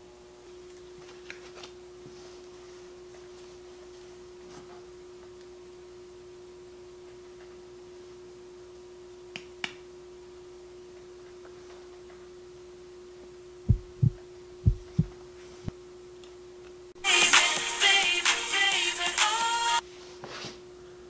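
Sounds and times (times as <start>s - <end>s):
steady humming tone: 0.0s - 19.8s
loud deep thuds: 13.7s - 15.1s.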